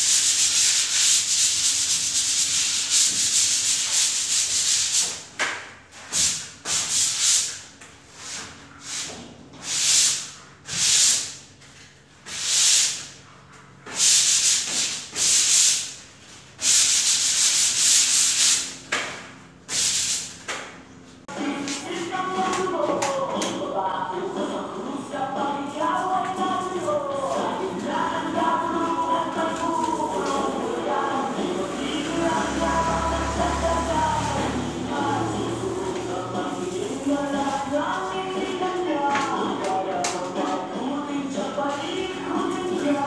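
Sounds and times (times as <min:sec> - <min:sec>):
sandpaper rasping on wall: 0:00.0 - 0:05.3, 0:05.9 - 0:11.4, 0:12.2 - 0:13.2, 0:13.8 - 0:18.9, 0:19.6 - 0:20.4, 0:26.0 - 0:38.8.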